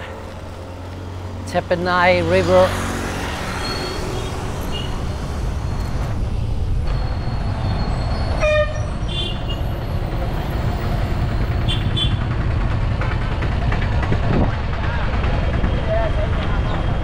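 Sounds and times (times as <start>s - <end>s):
road traffic rumble: 0.0s - 17.0s
vehicle horn toot: 8.4s - 9.6s, 11.7s - 12.2s
wind on microphone: 13.9s - 14.8s.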